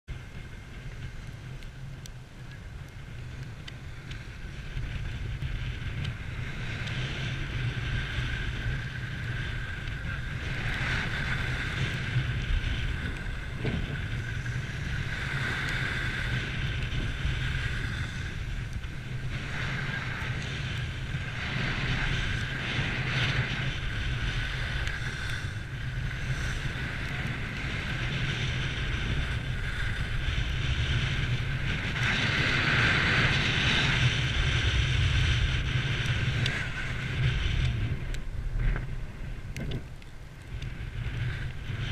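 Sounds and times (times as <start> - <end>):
skis scraping on snow: 0.1 - 41.9
wind buffeting microphone: 0.1 - 41.9.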